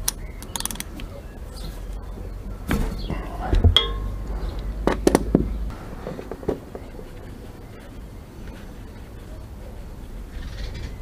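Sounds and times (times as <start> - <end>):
metallic clink ringing: 3.8 - 4.2.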